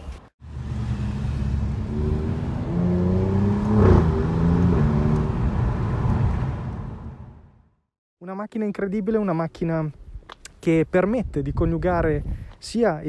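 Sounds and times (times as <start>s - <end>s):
car engine accelerating: 0.4s - 7.5s.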